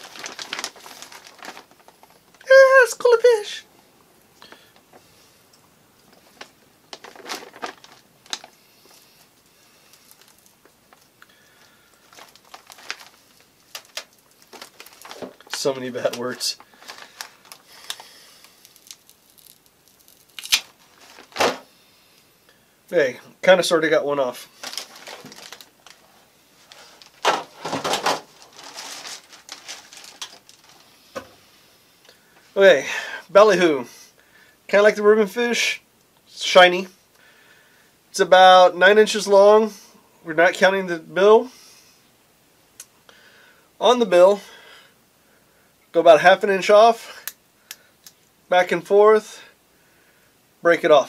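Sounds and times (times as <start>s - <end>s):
frozen bait pack crinkling: 0.0s - 3.4s, 6.1s - 21.6s, 24.5s - 30.9s
scattered shuffling: 12.0s - 17.6s, 24.6s - 30.9s
rustling and knocking: 27.0s - 31.4s.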